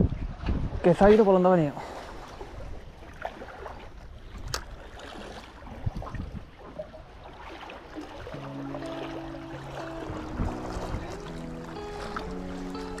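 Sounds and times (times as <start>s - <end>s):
wind and sea: 0.0s - 13.0s
background music: 8.4s - 13.0s.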